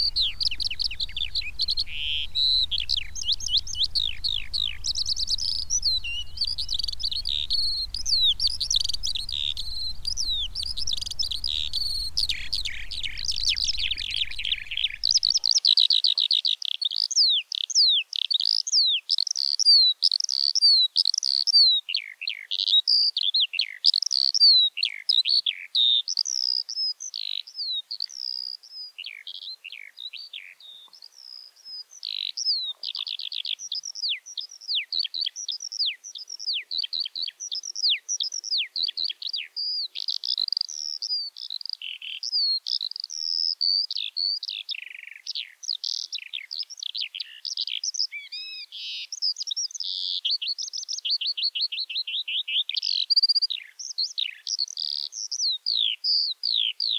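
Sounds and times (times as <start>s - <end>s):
low rumble: 0.0s - 15.3s
skylark singing: 0.0s - 15.5s.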